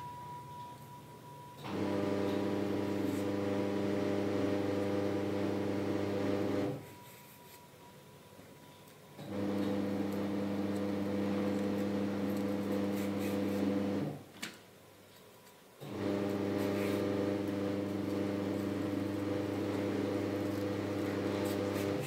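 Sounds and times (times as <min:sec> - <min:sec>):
electric appliance hum: 0:01.6 - 0:06.9, 0:09.2 - 0:14.3, 0:15.8 - 0:22.0.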